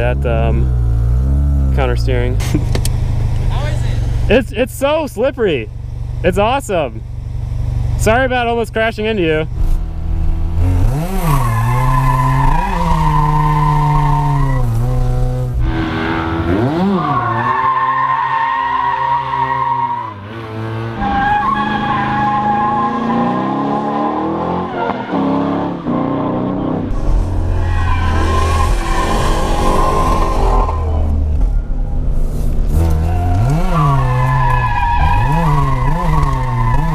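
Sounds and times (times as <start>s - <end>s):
car engine revving: 0.0s - 36.9s
tyre squeal: 10.9s - 20.2s, 21.0s - 25.5s, 27.5s - 36.9s.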